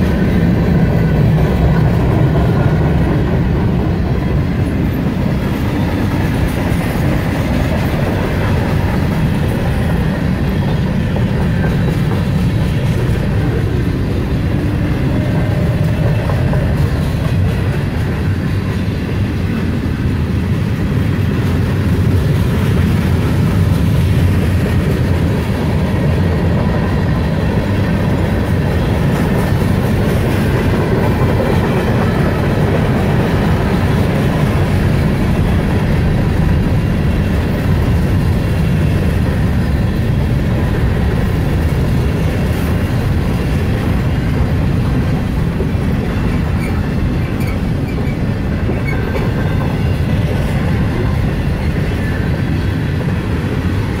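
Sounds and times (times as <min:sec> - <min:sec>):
freight train rumbling past: 0:00.0 - 0:54.0
train wheel clicks: 0:04.6 - 0:19.5.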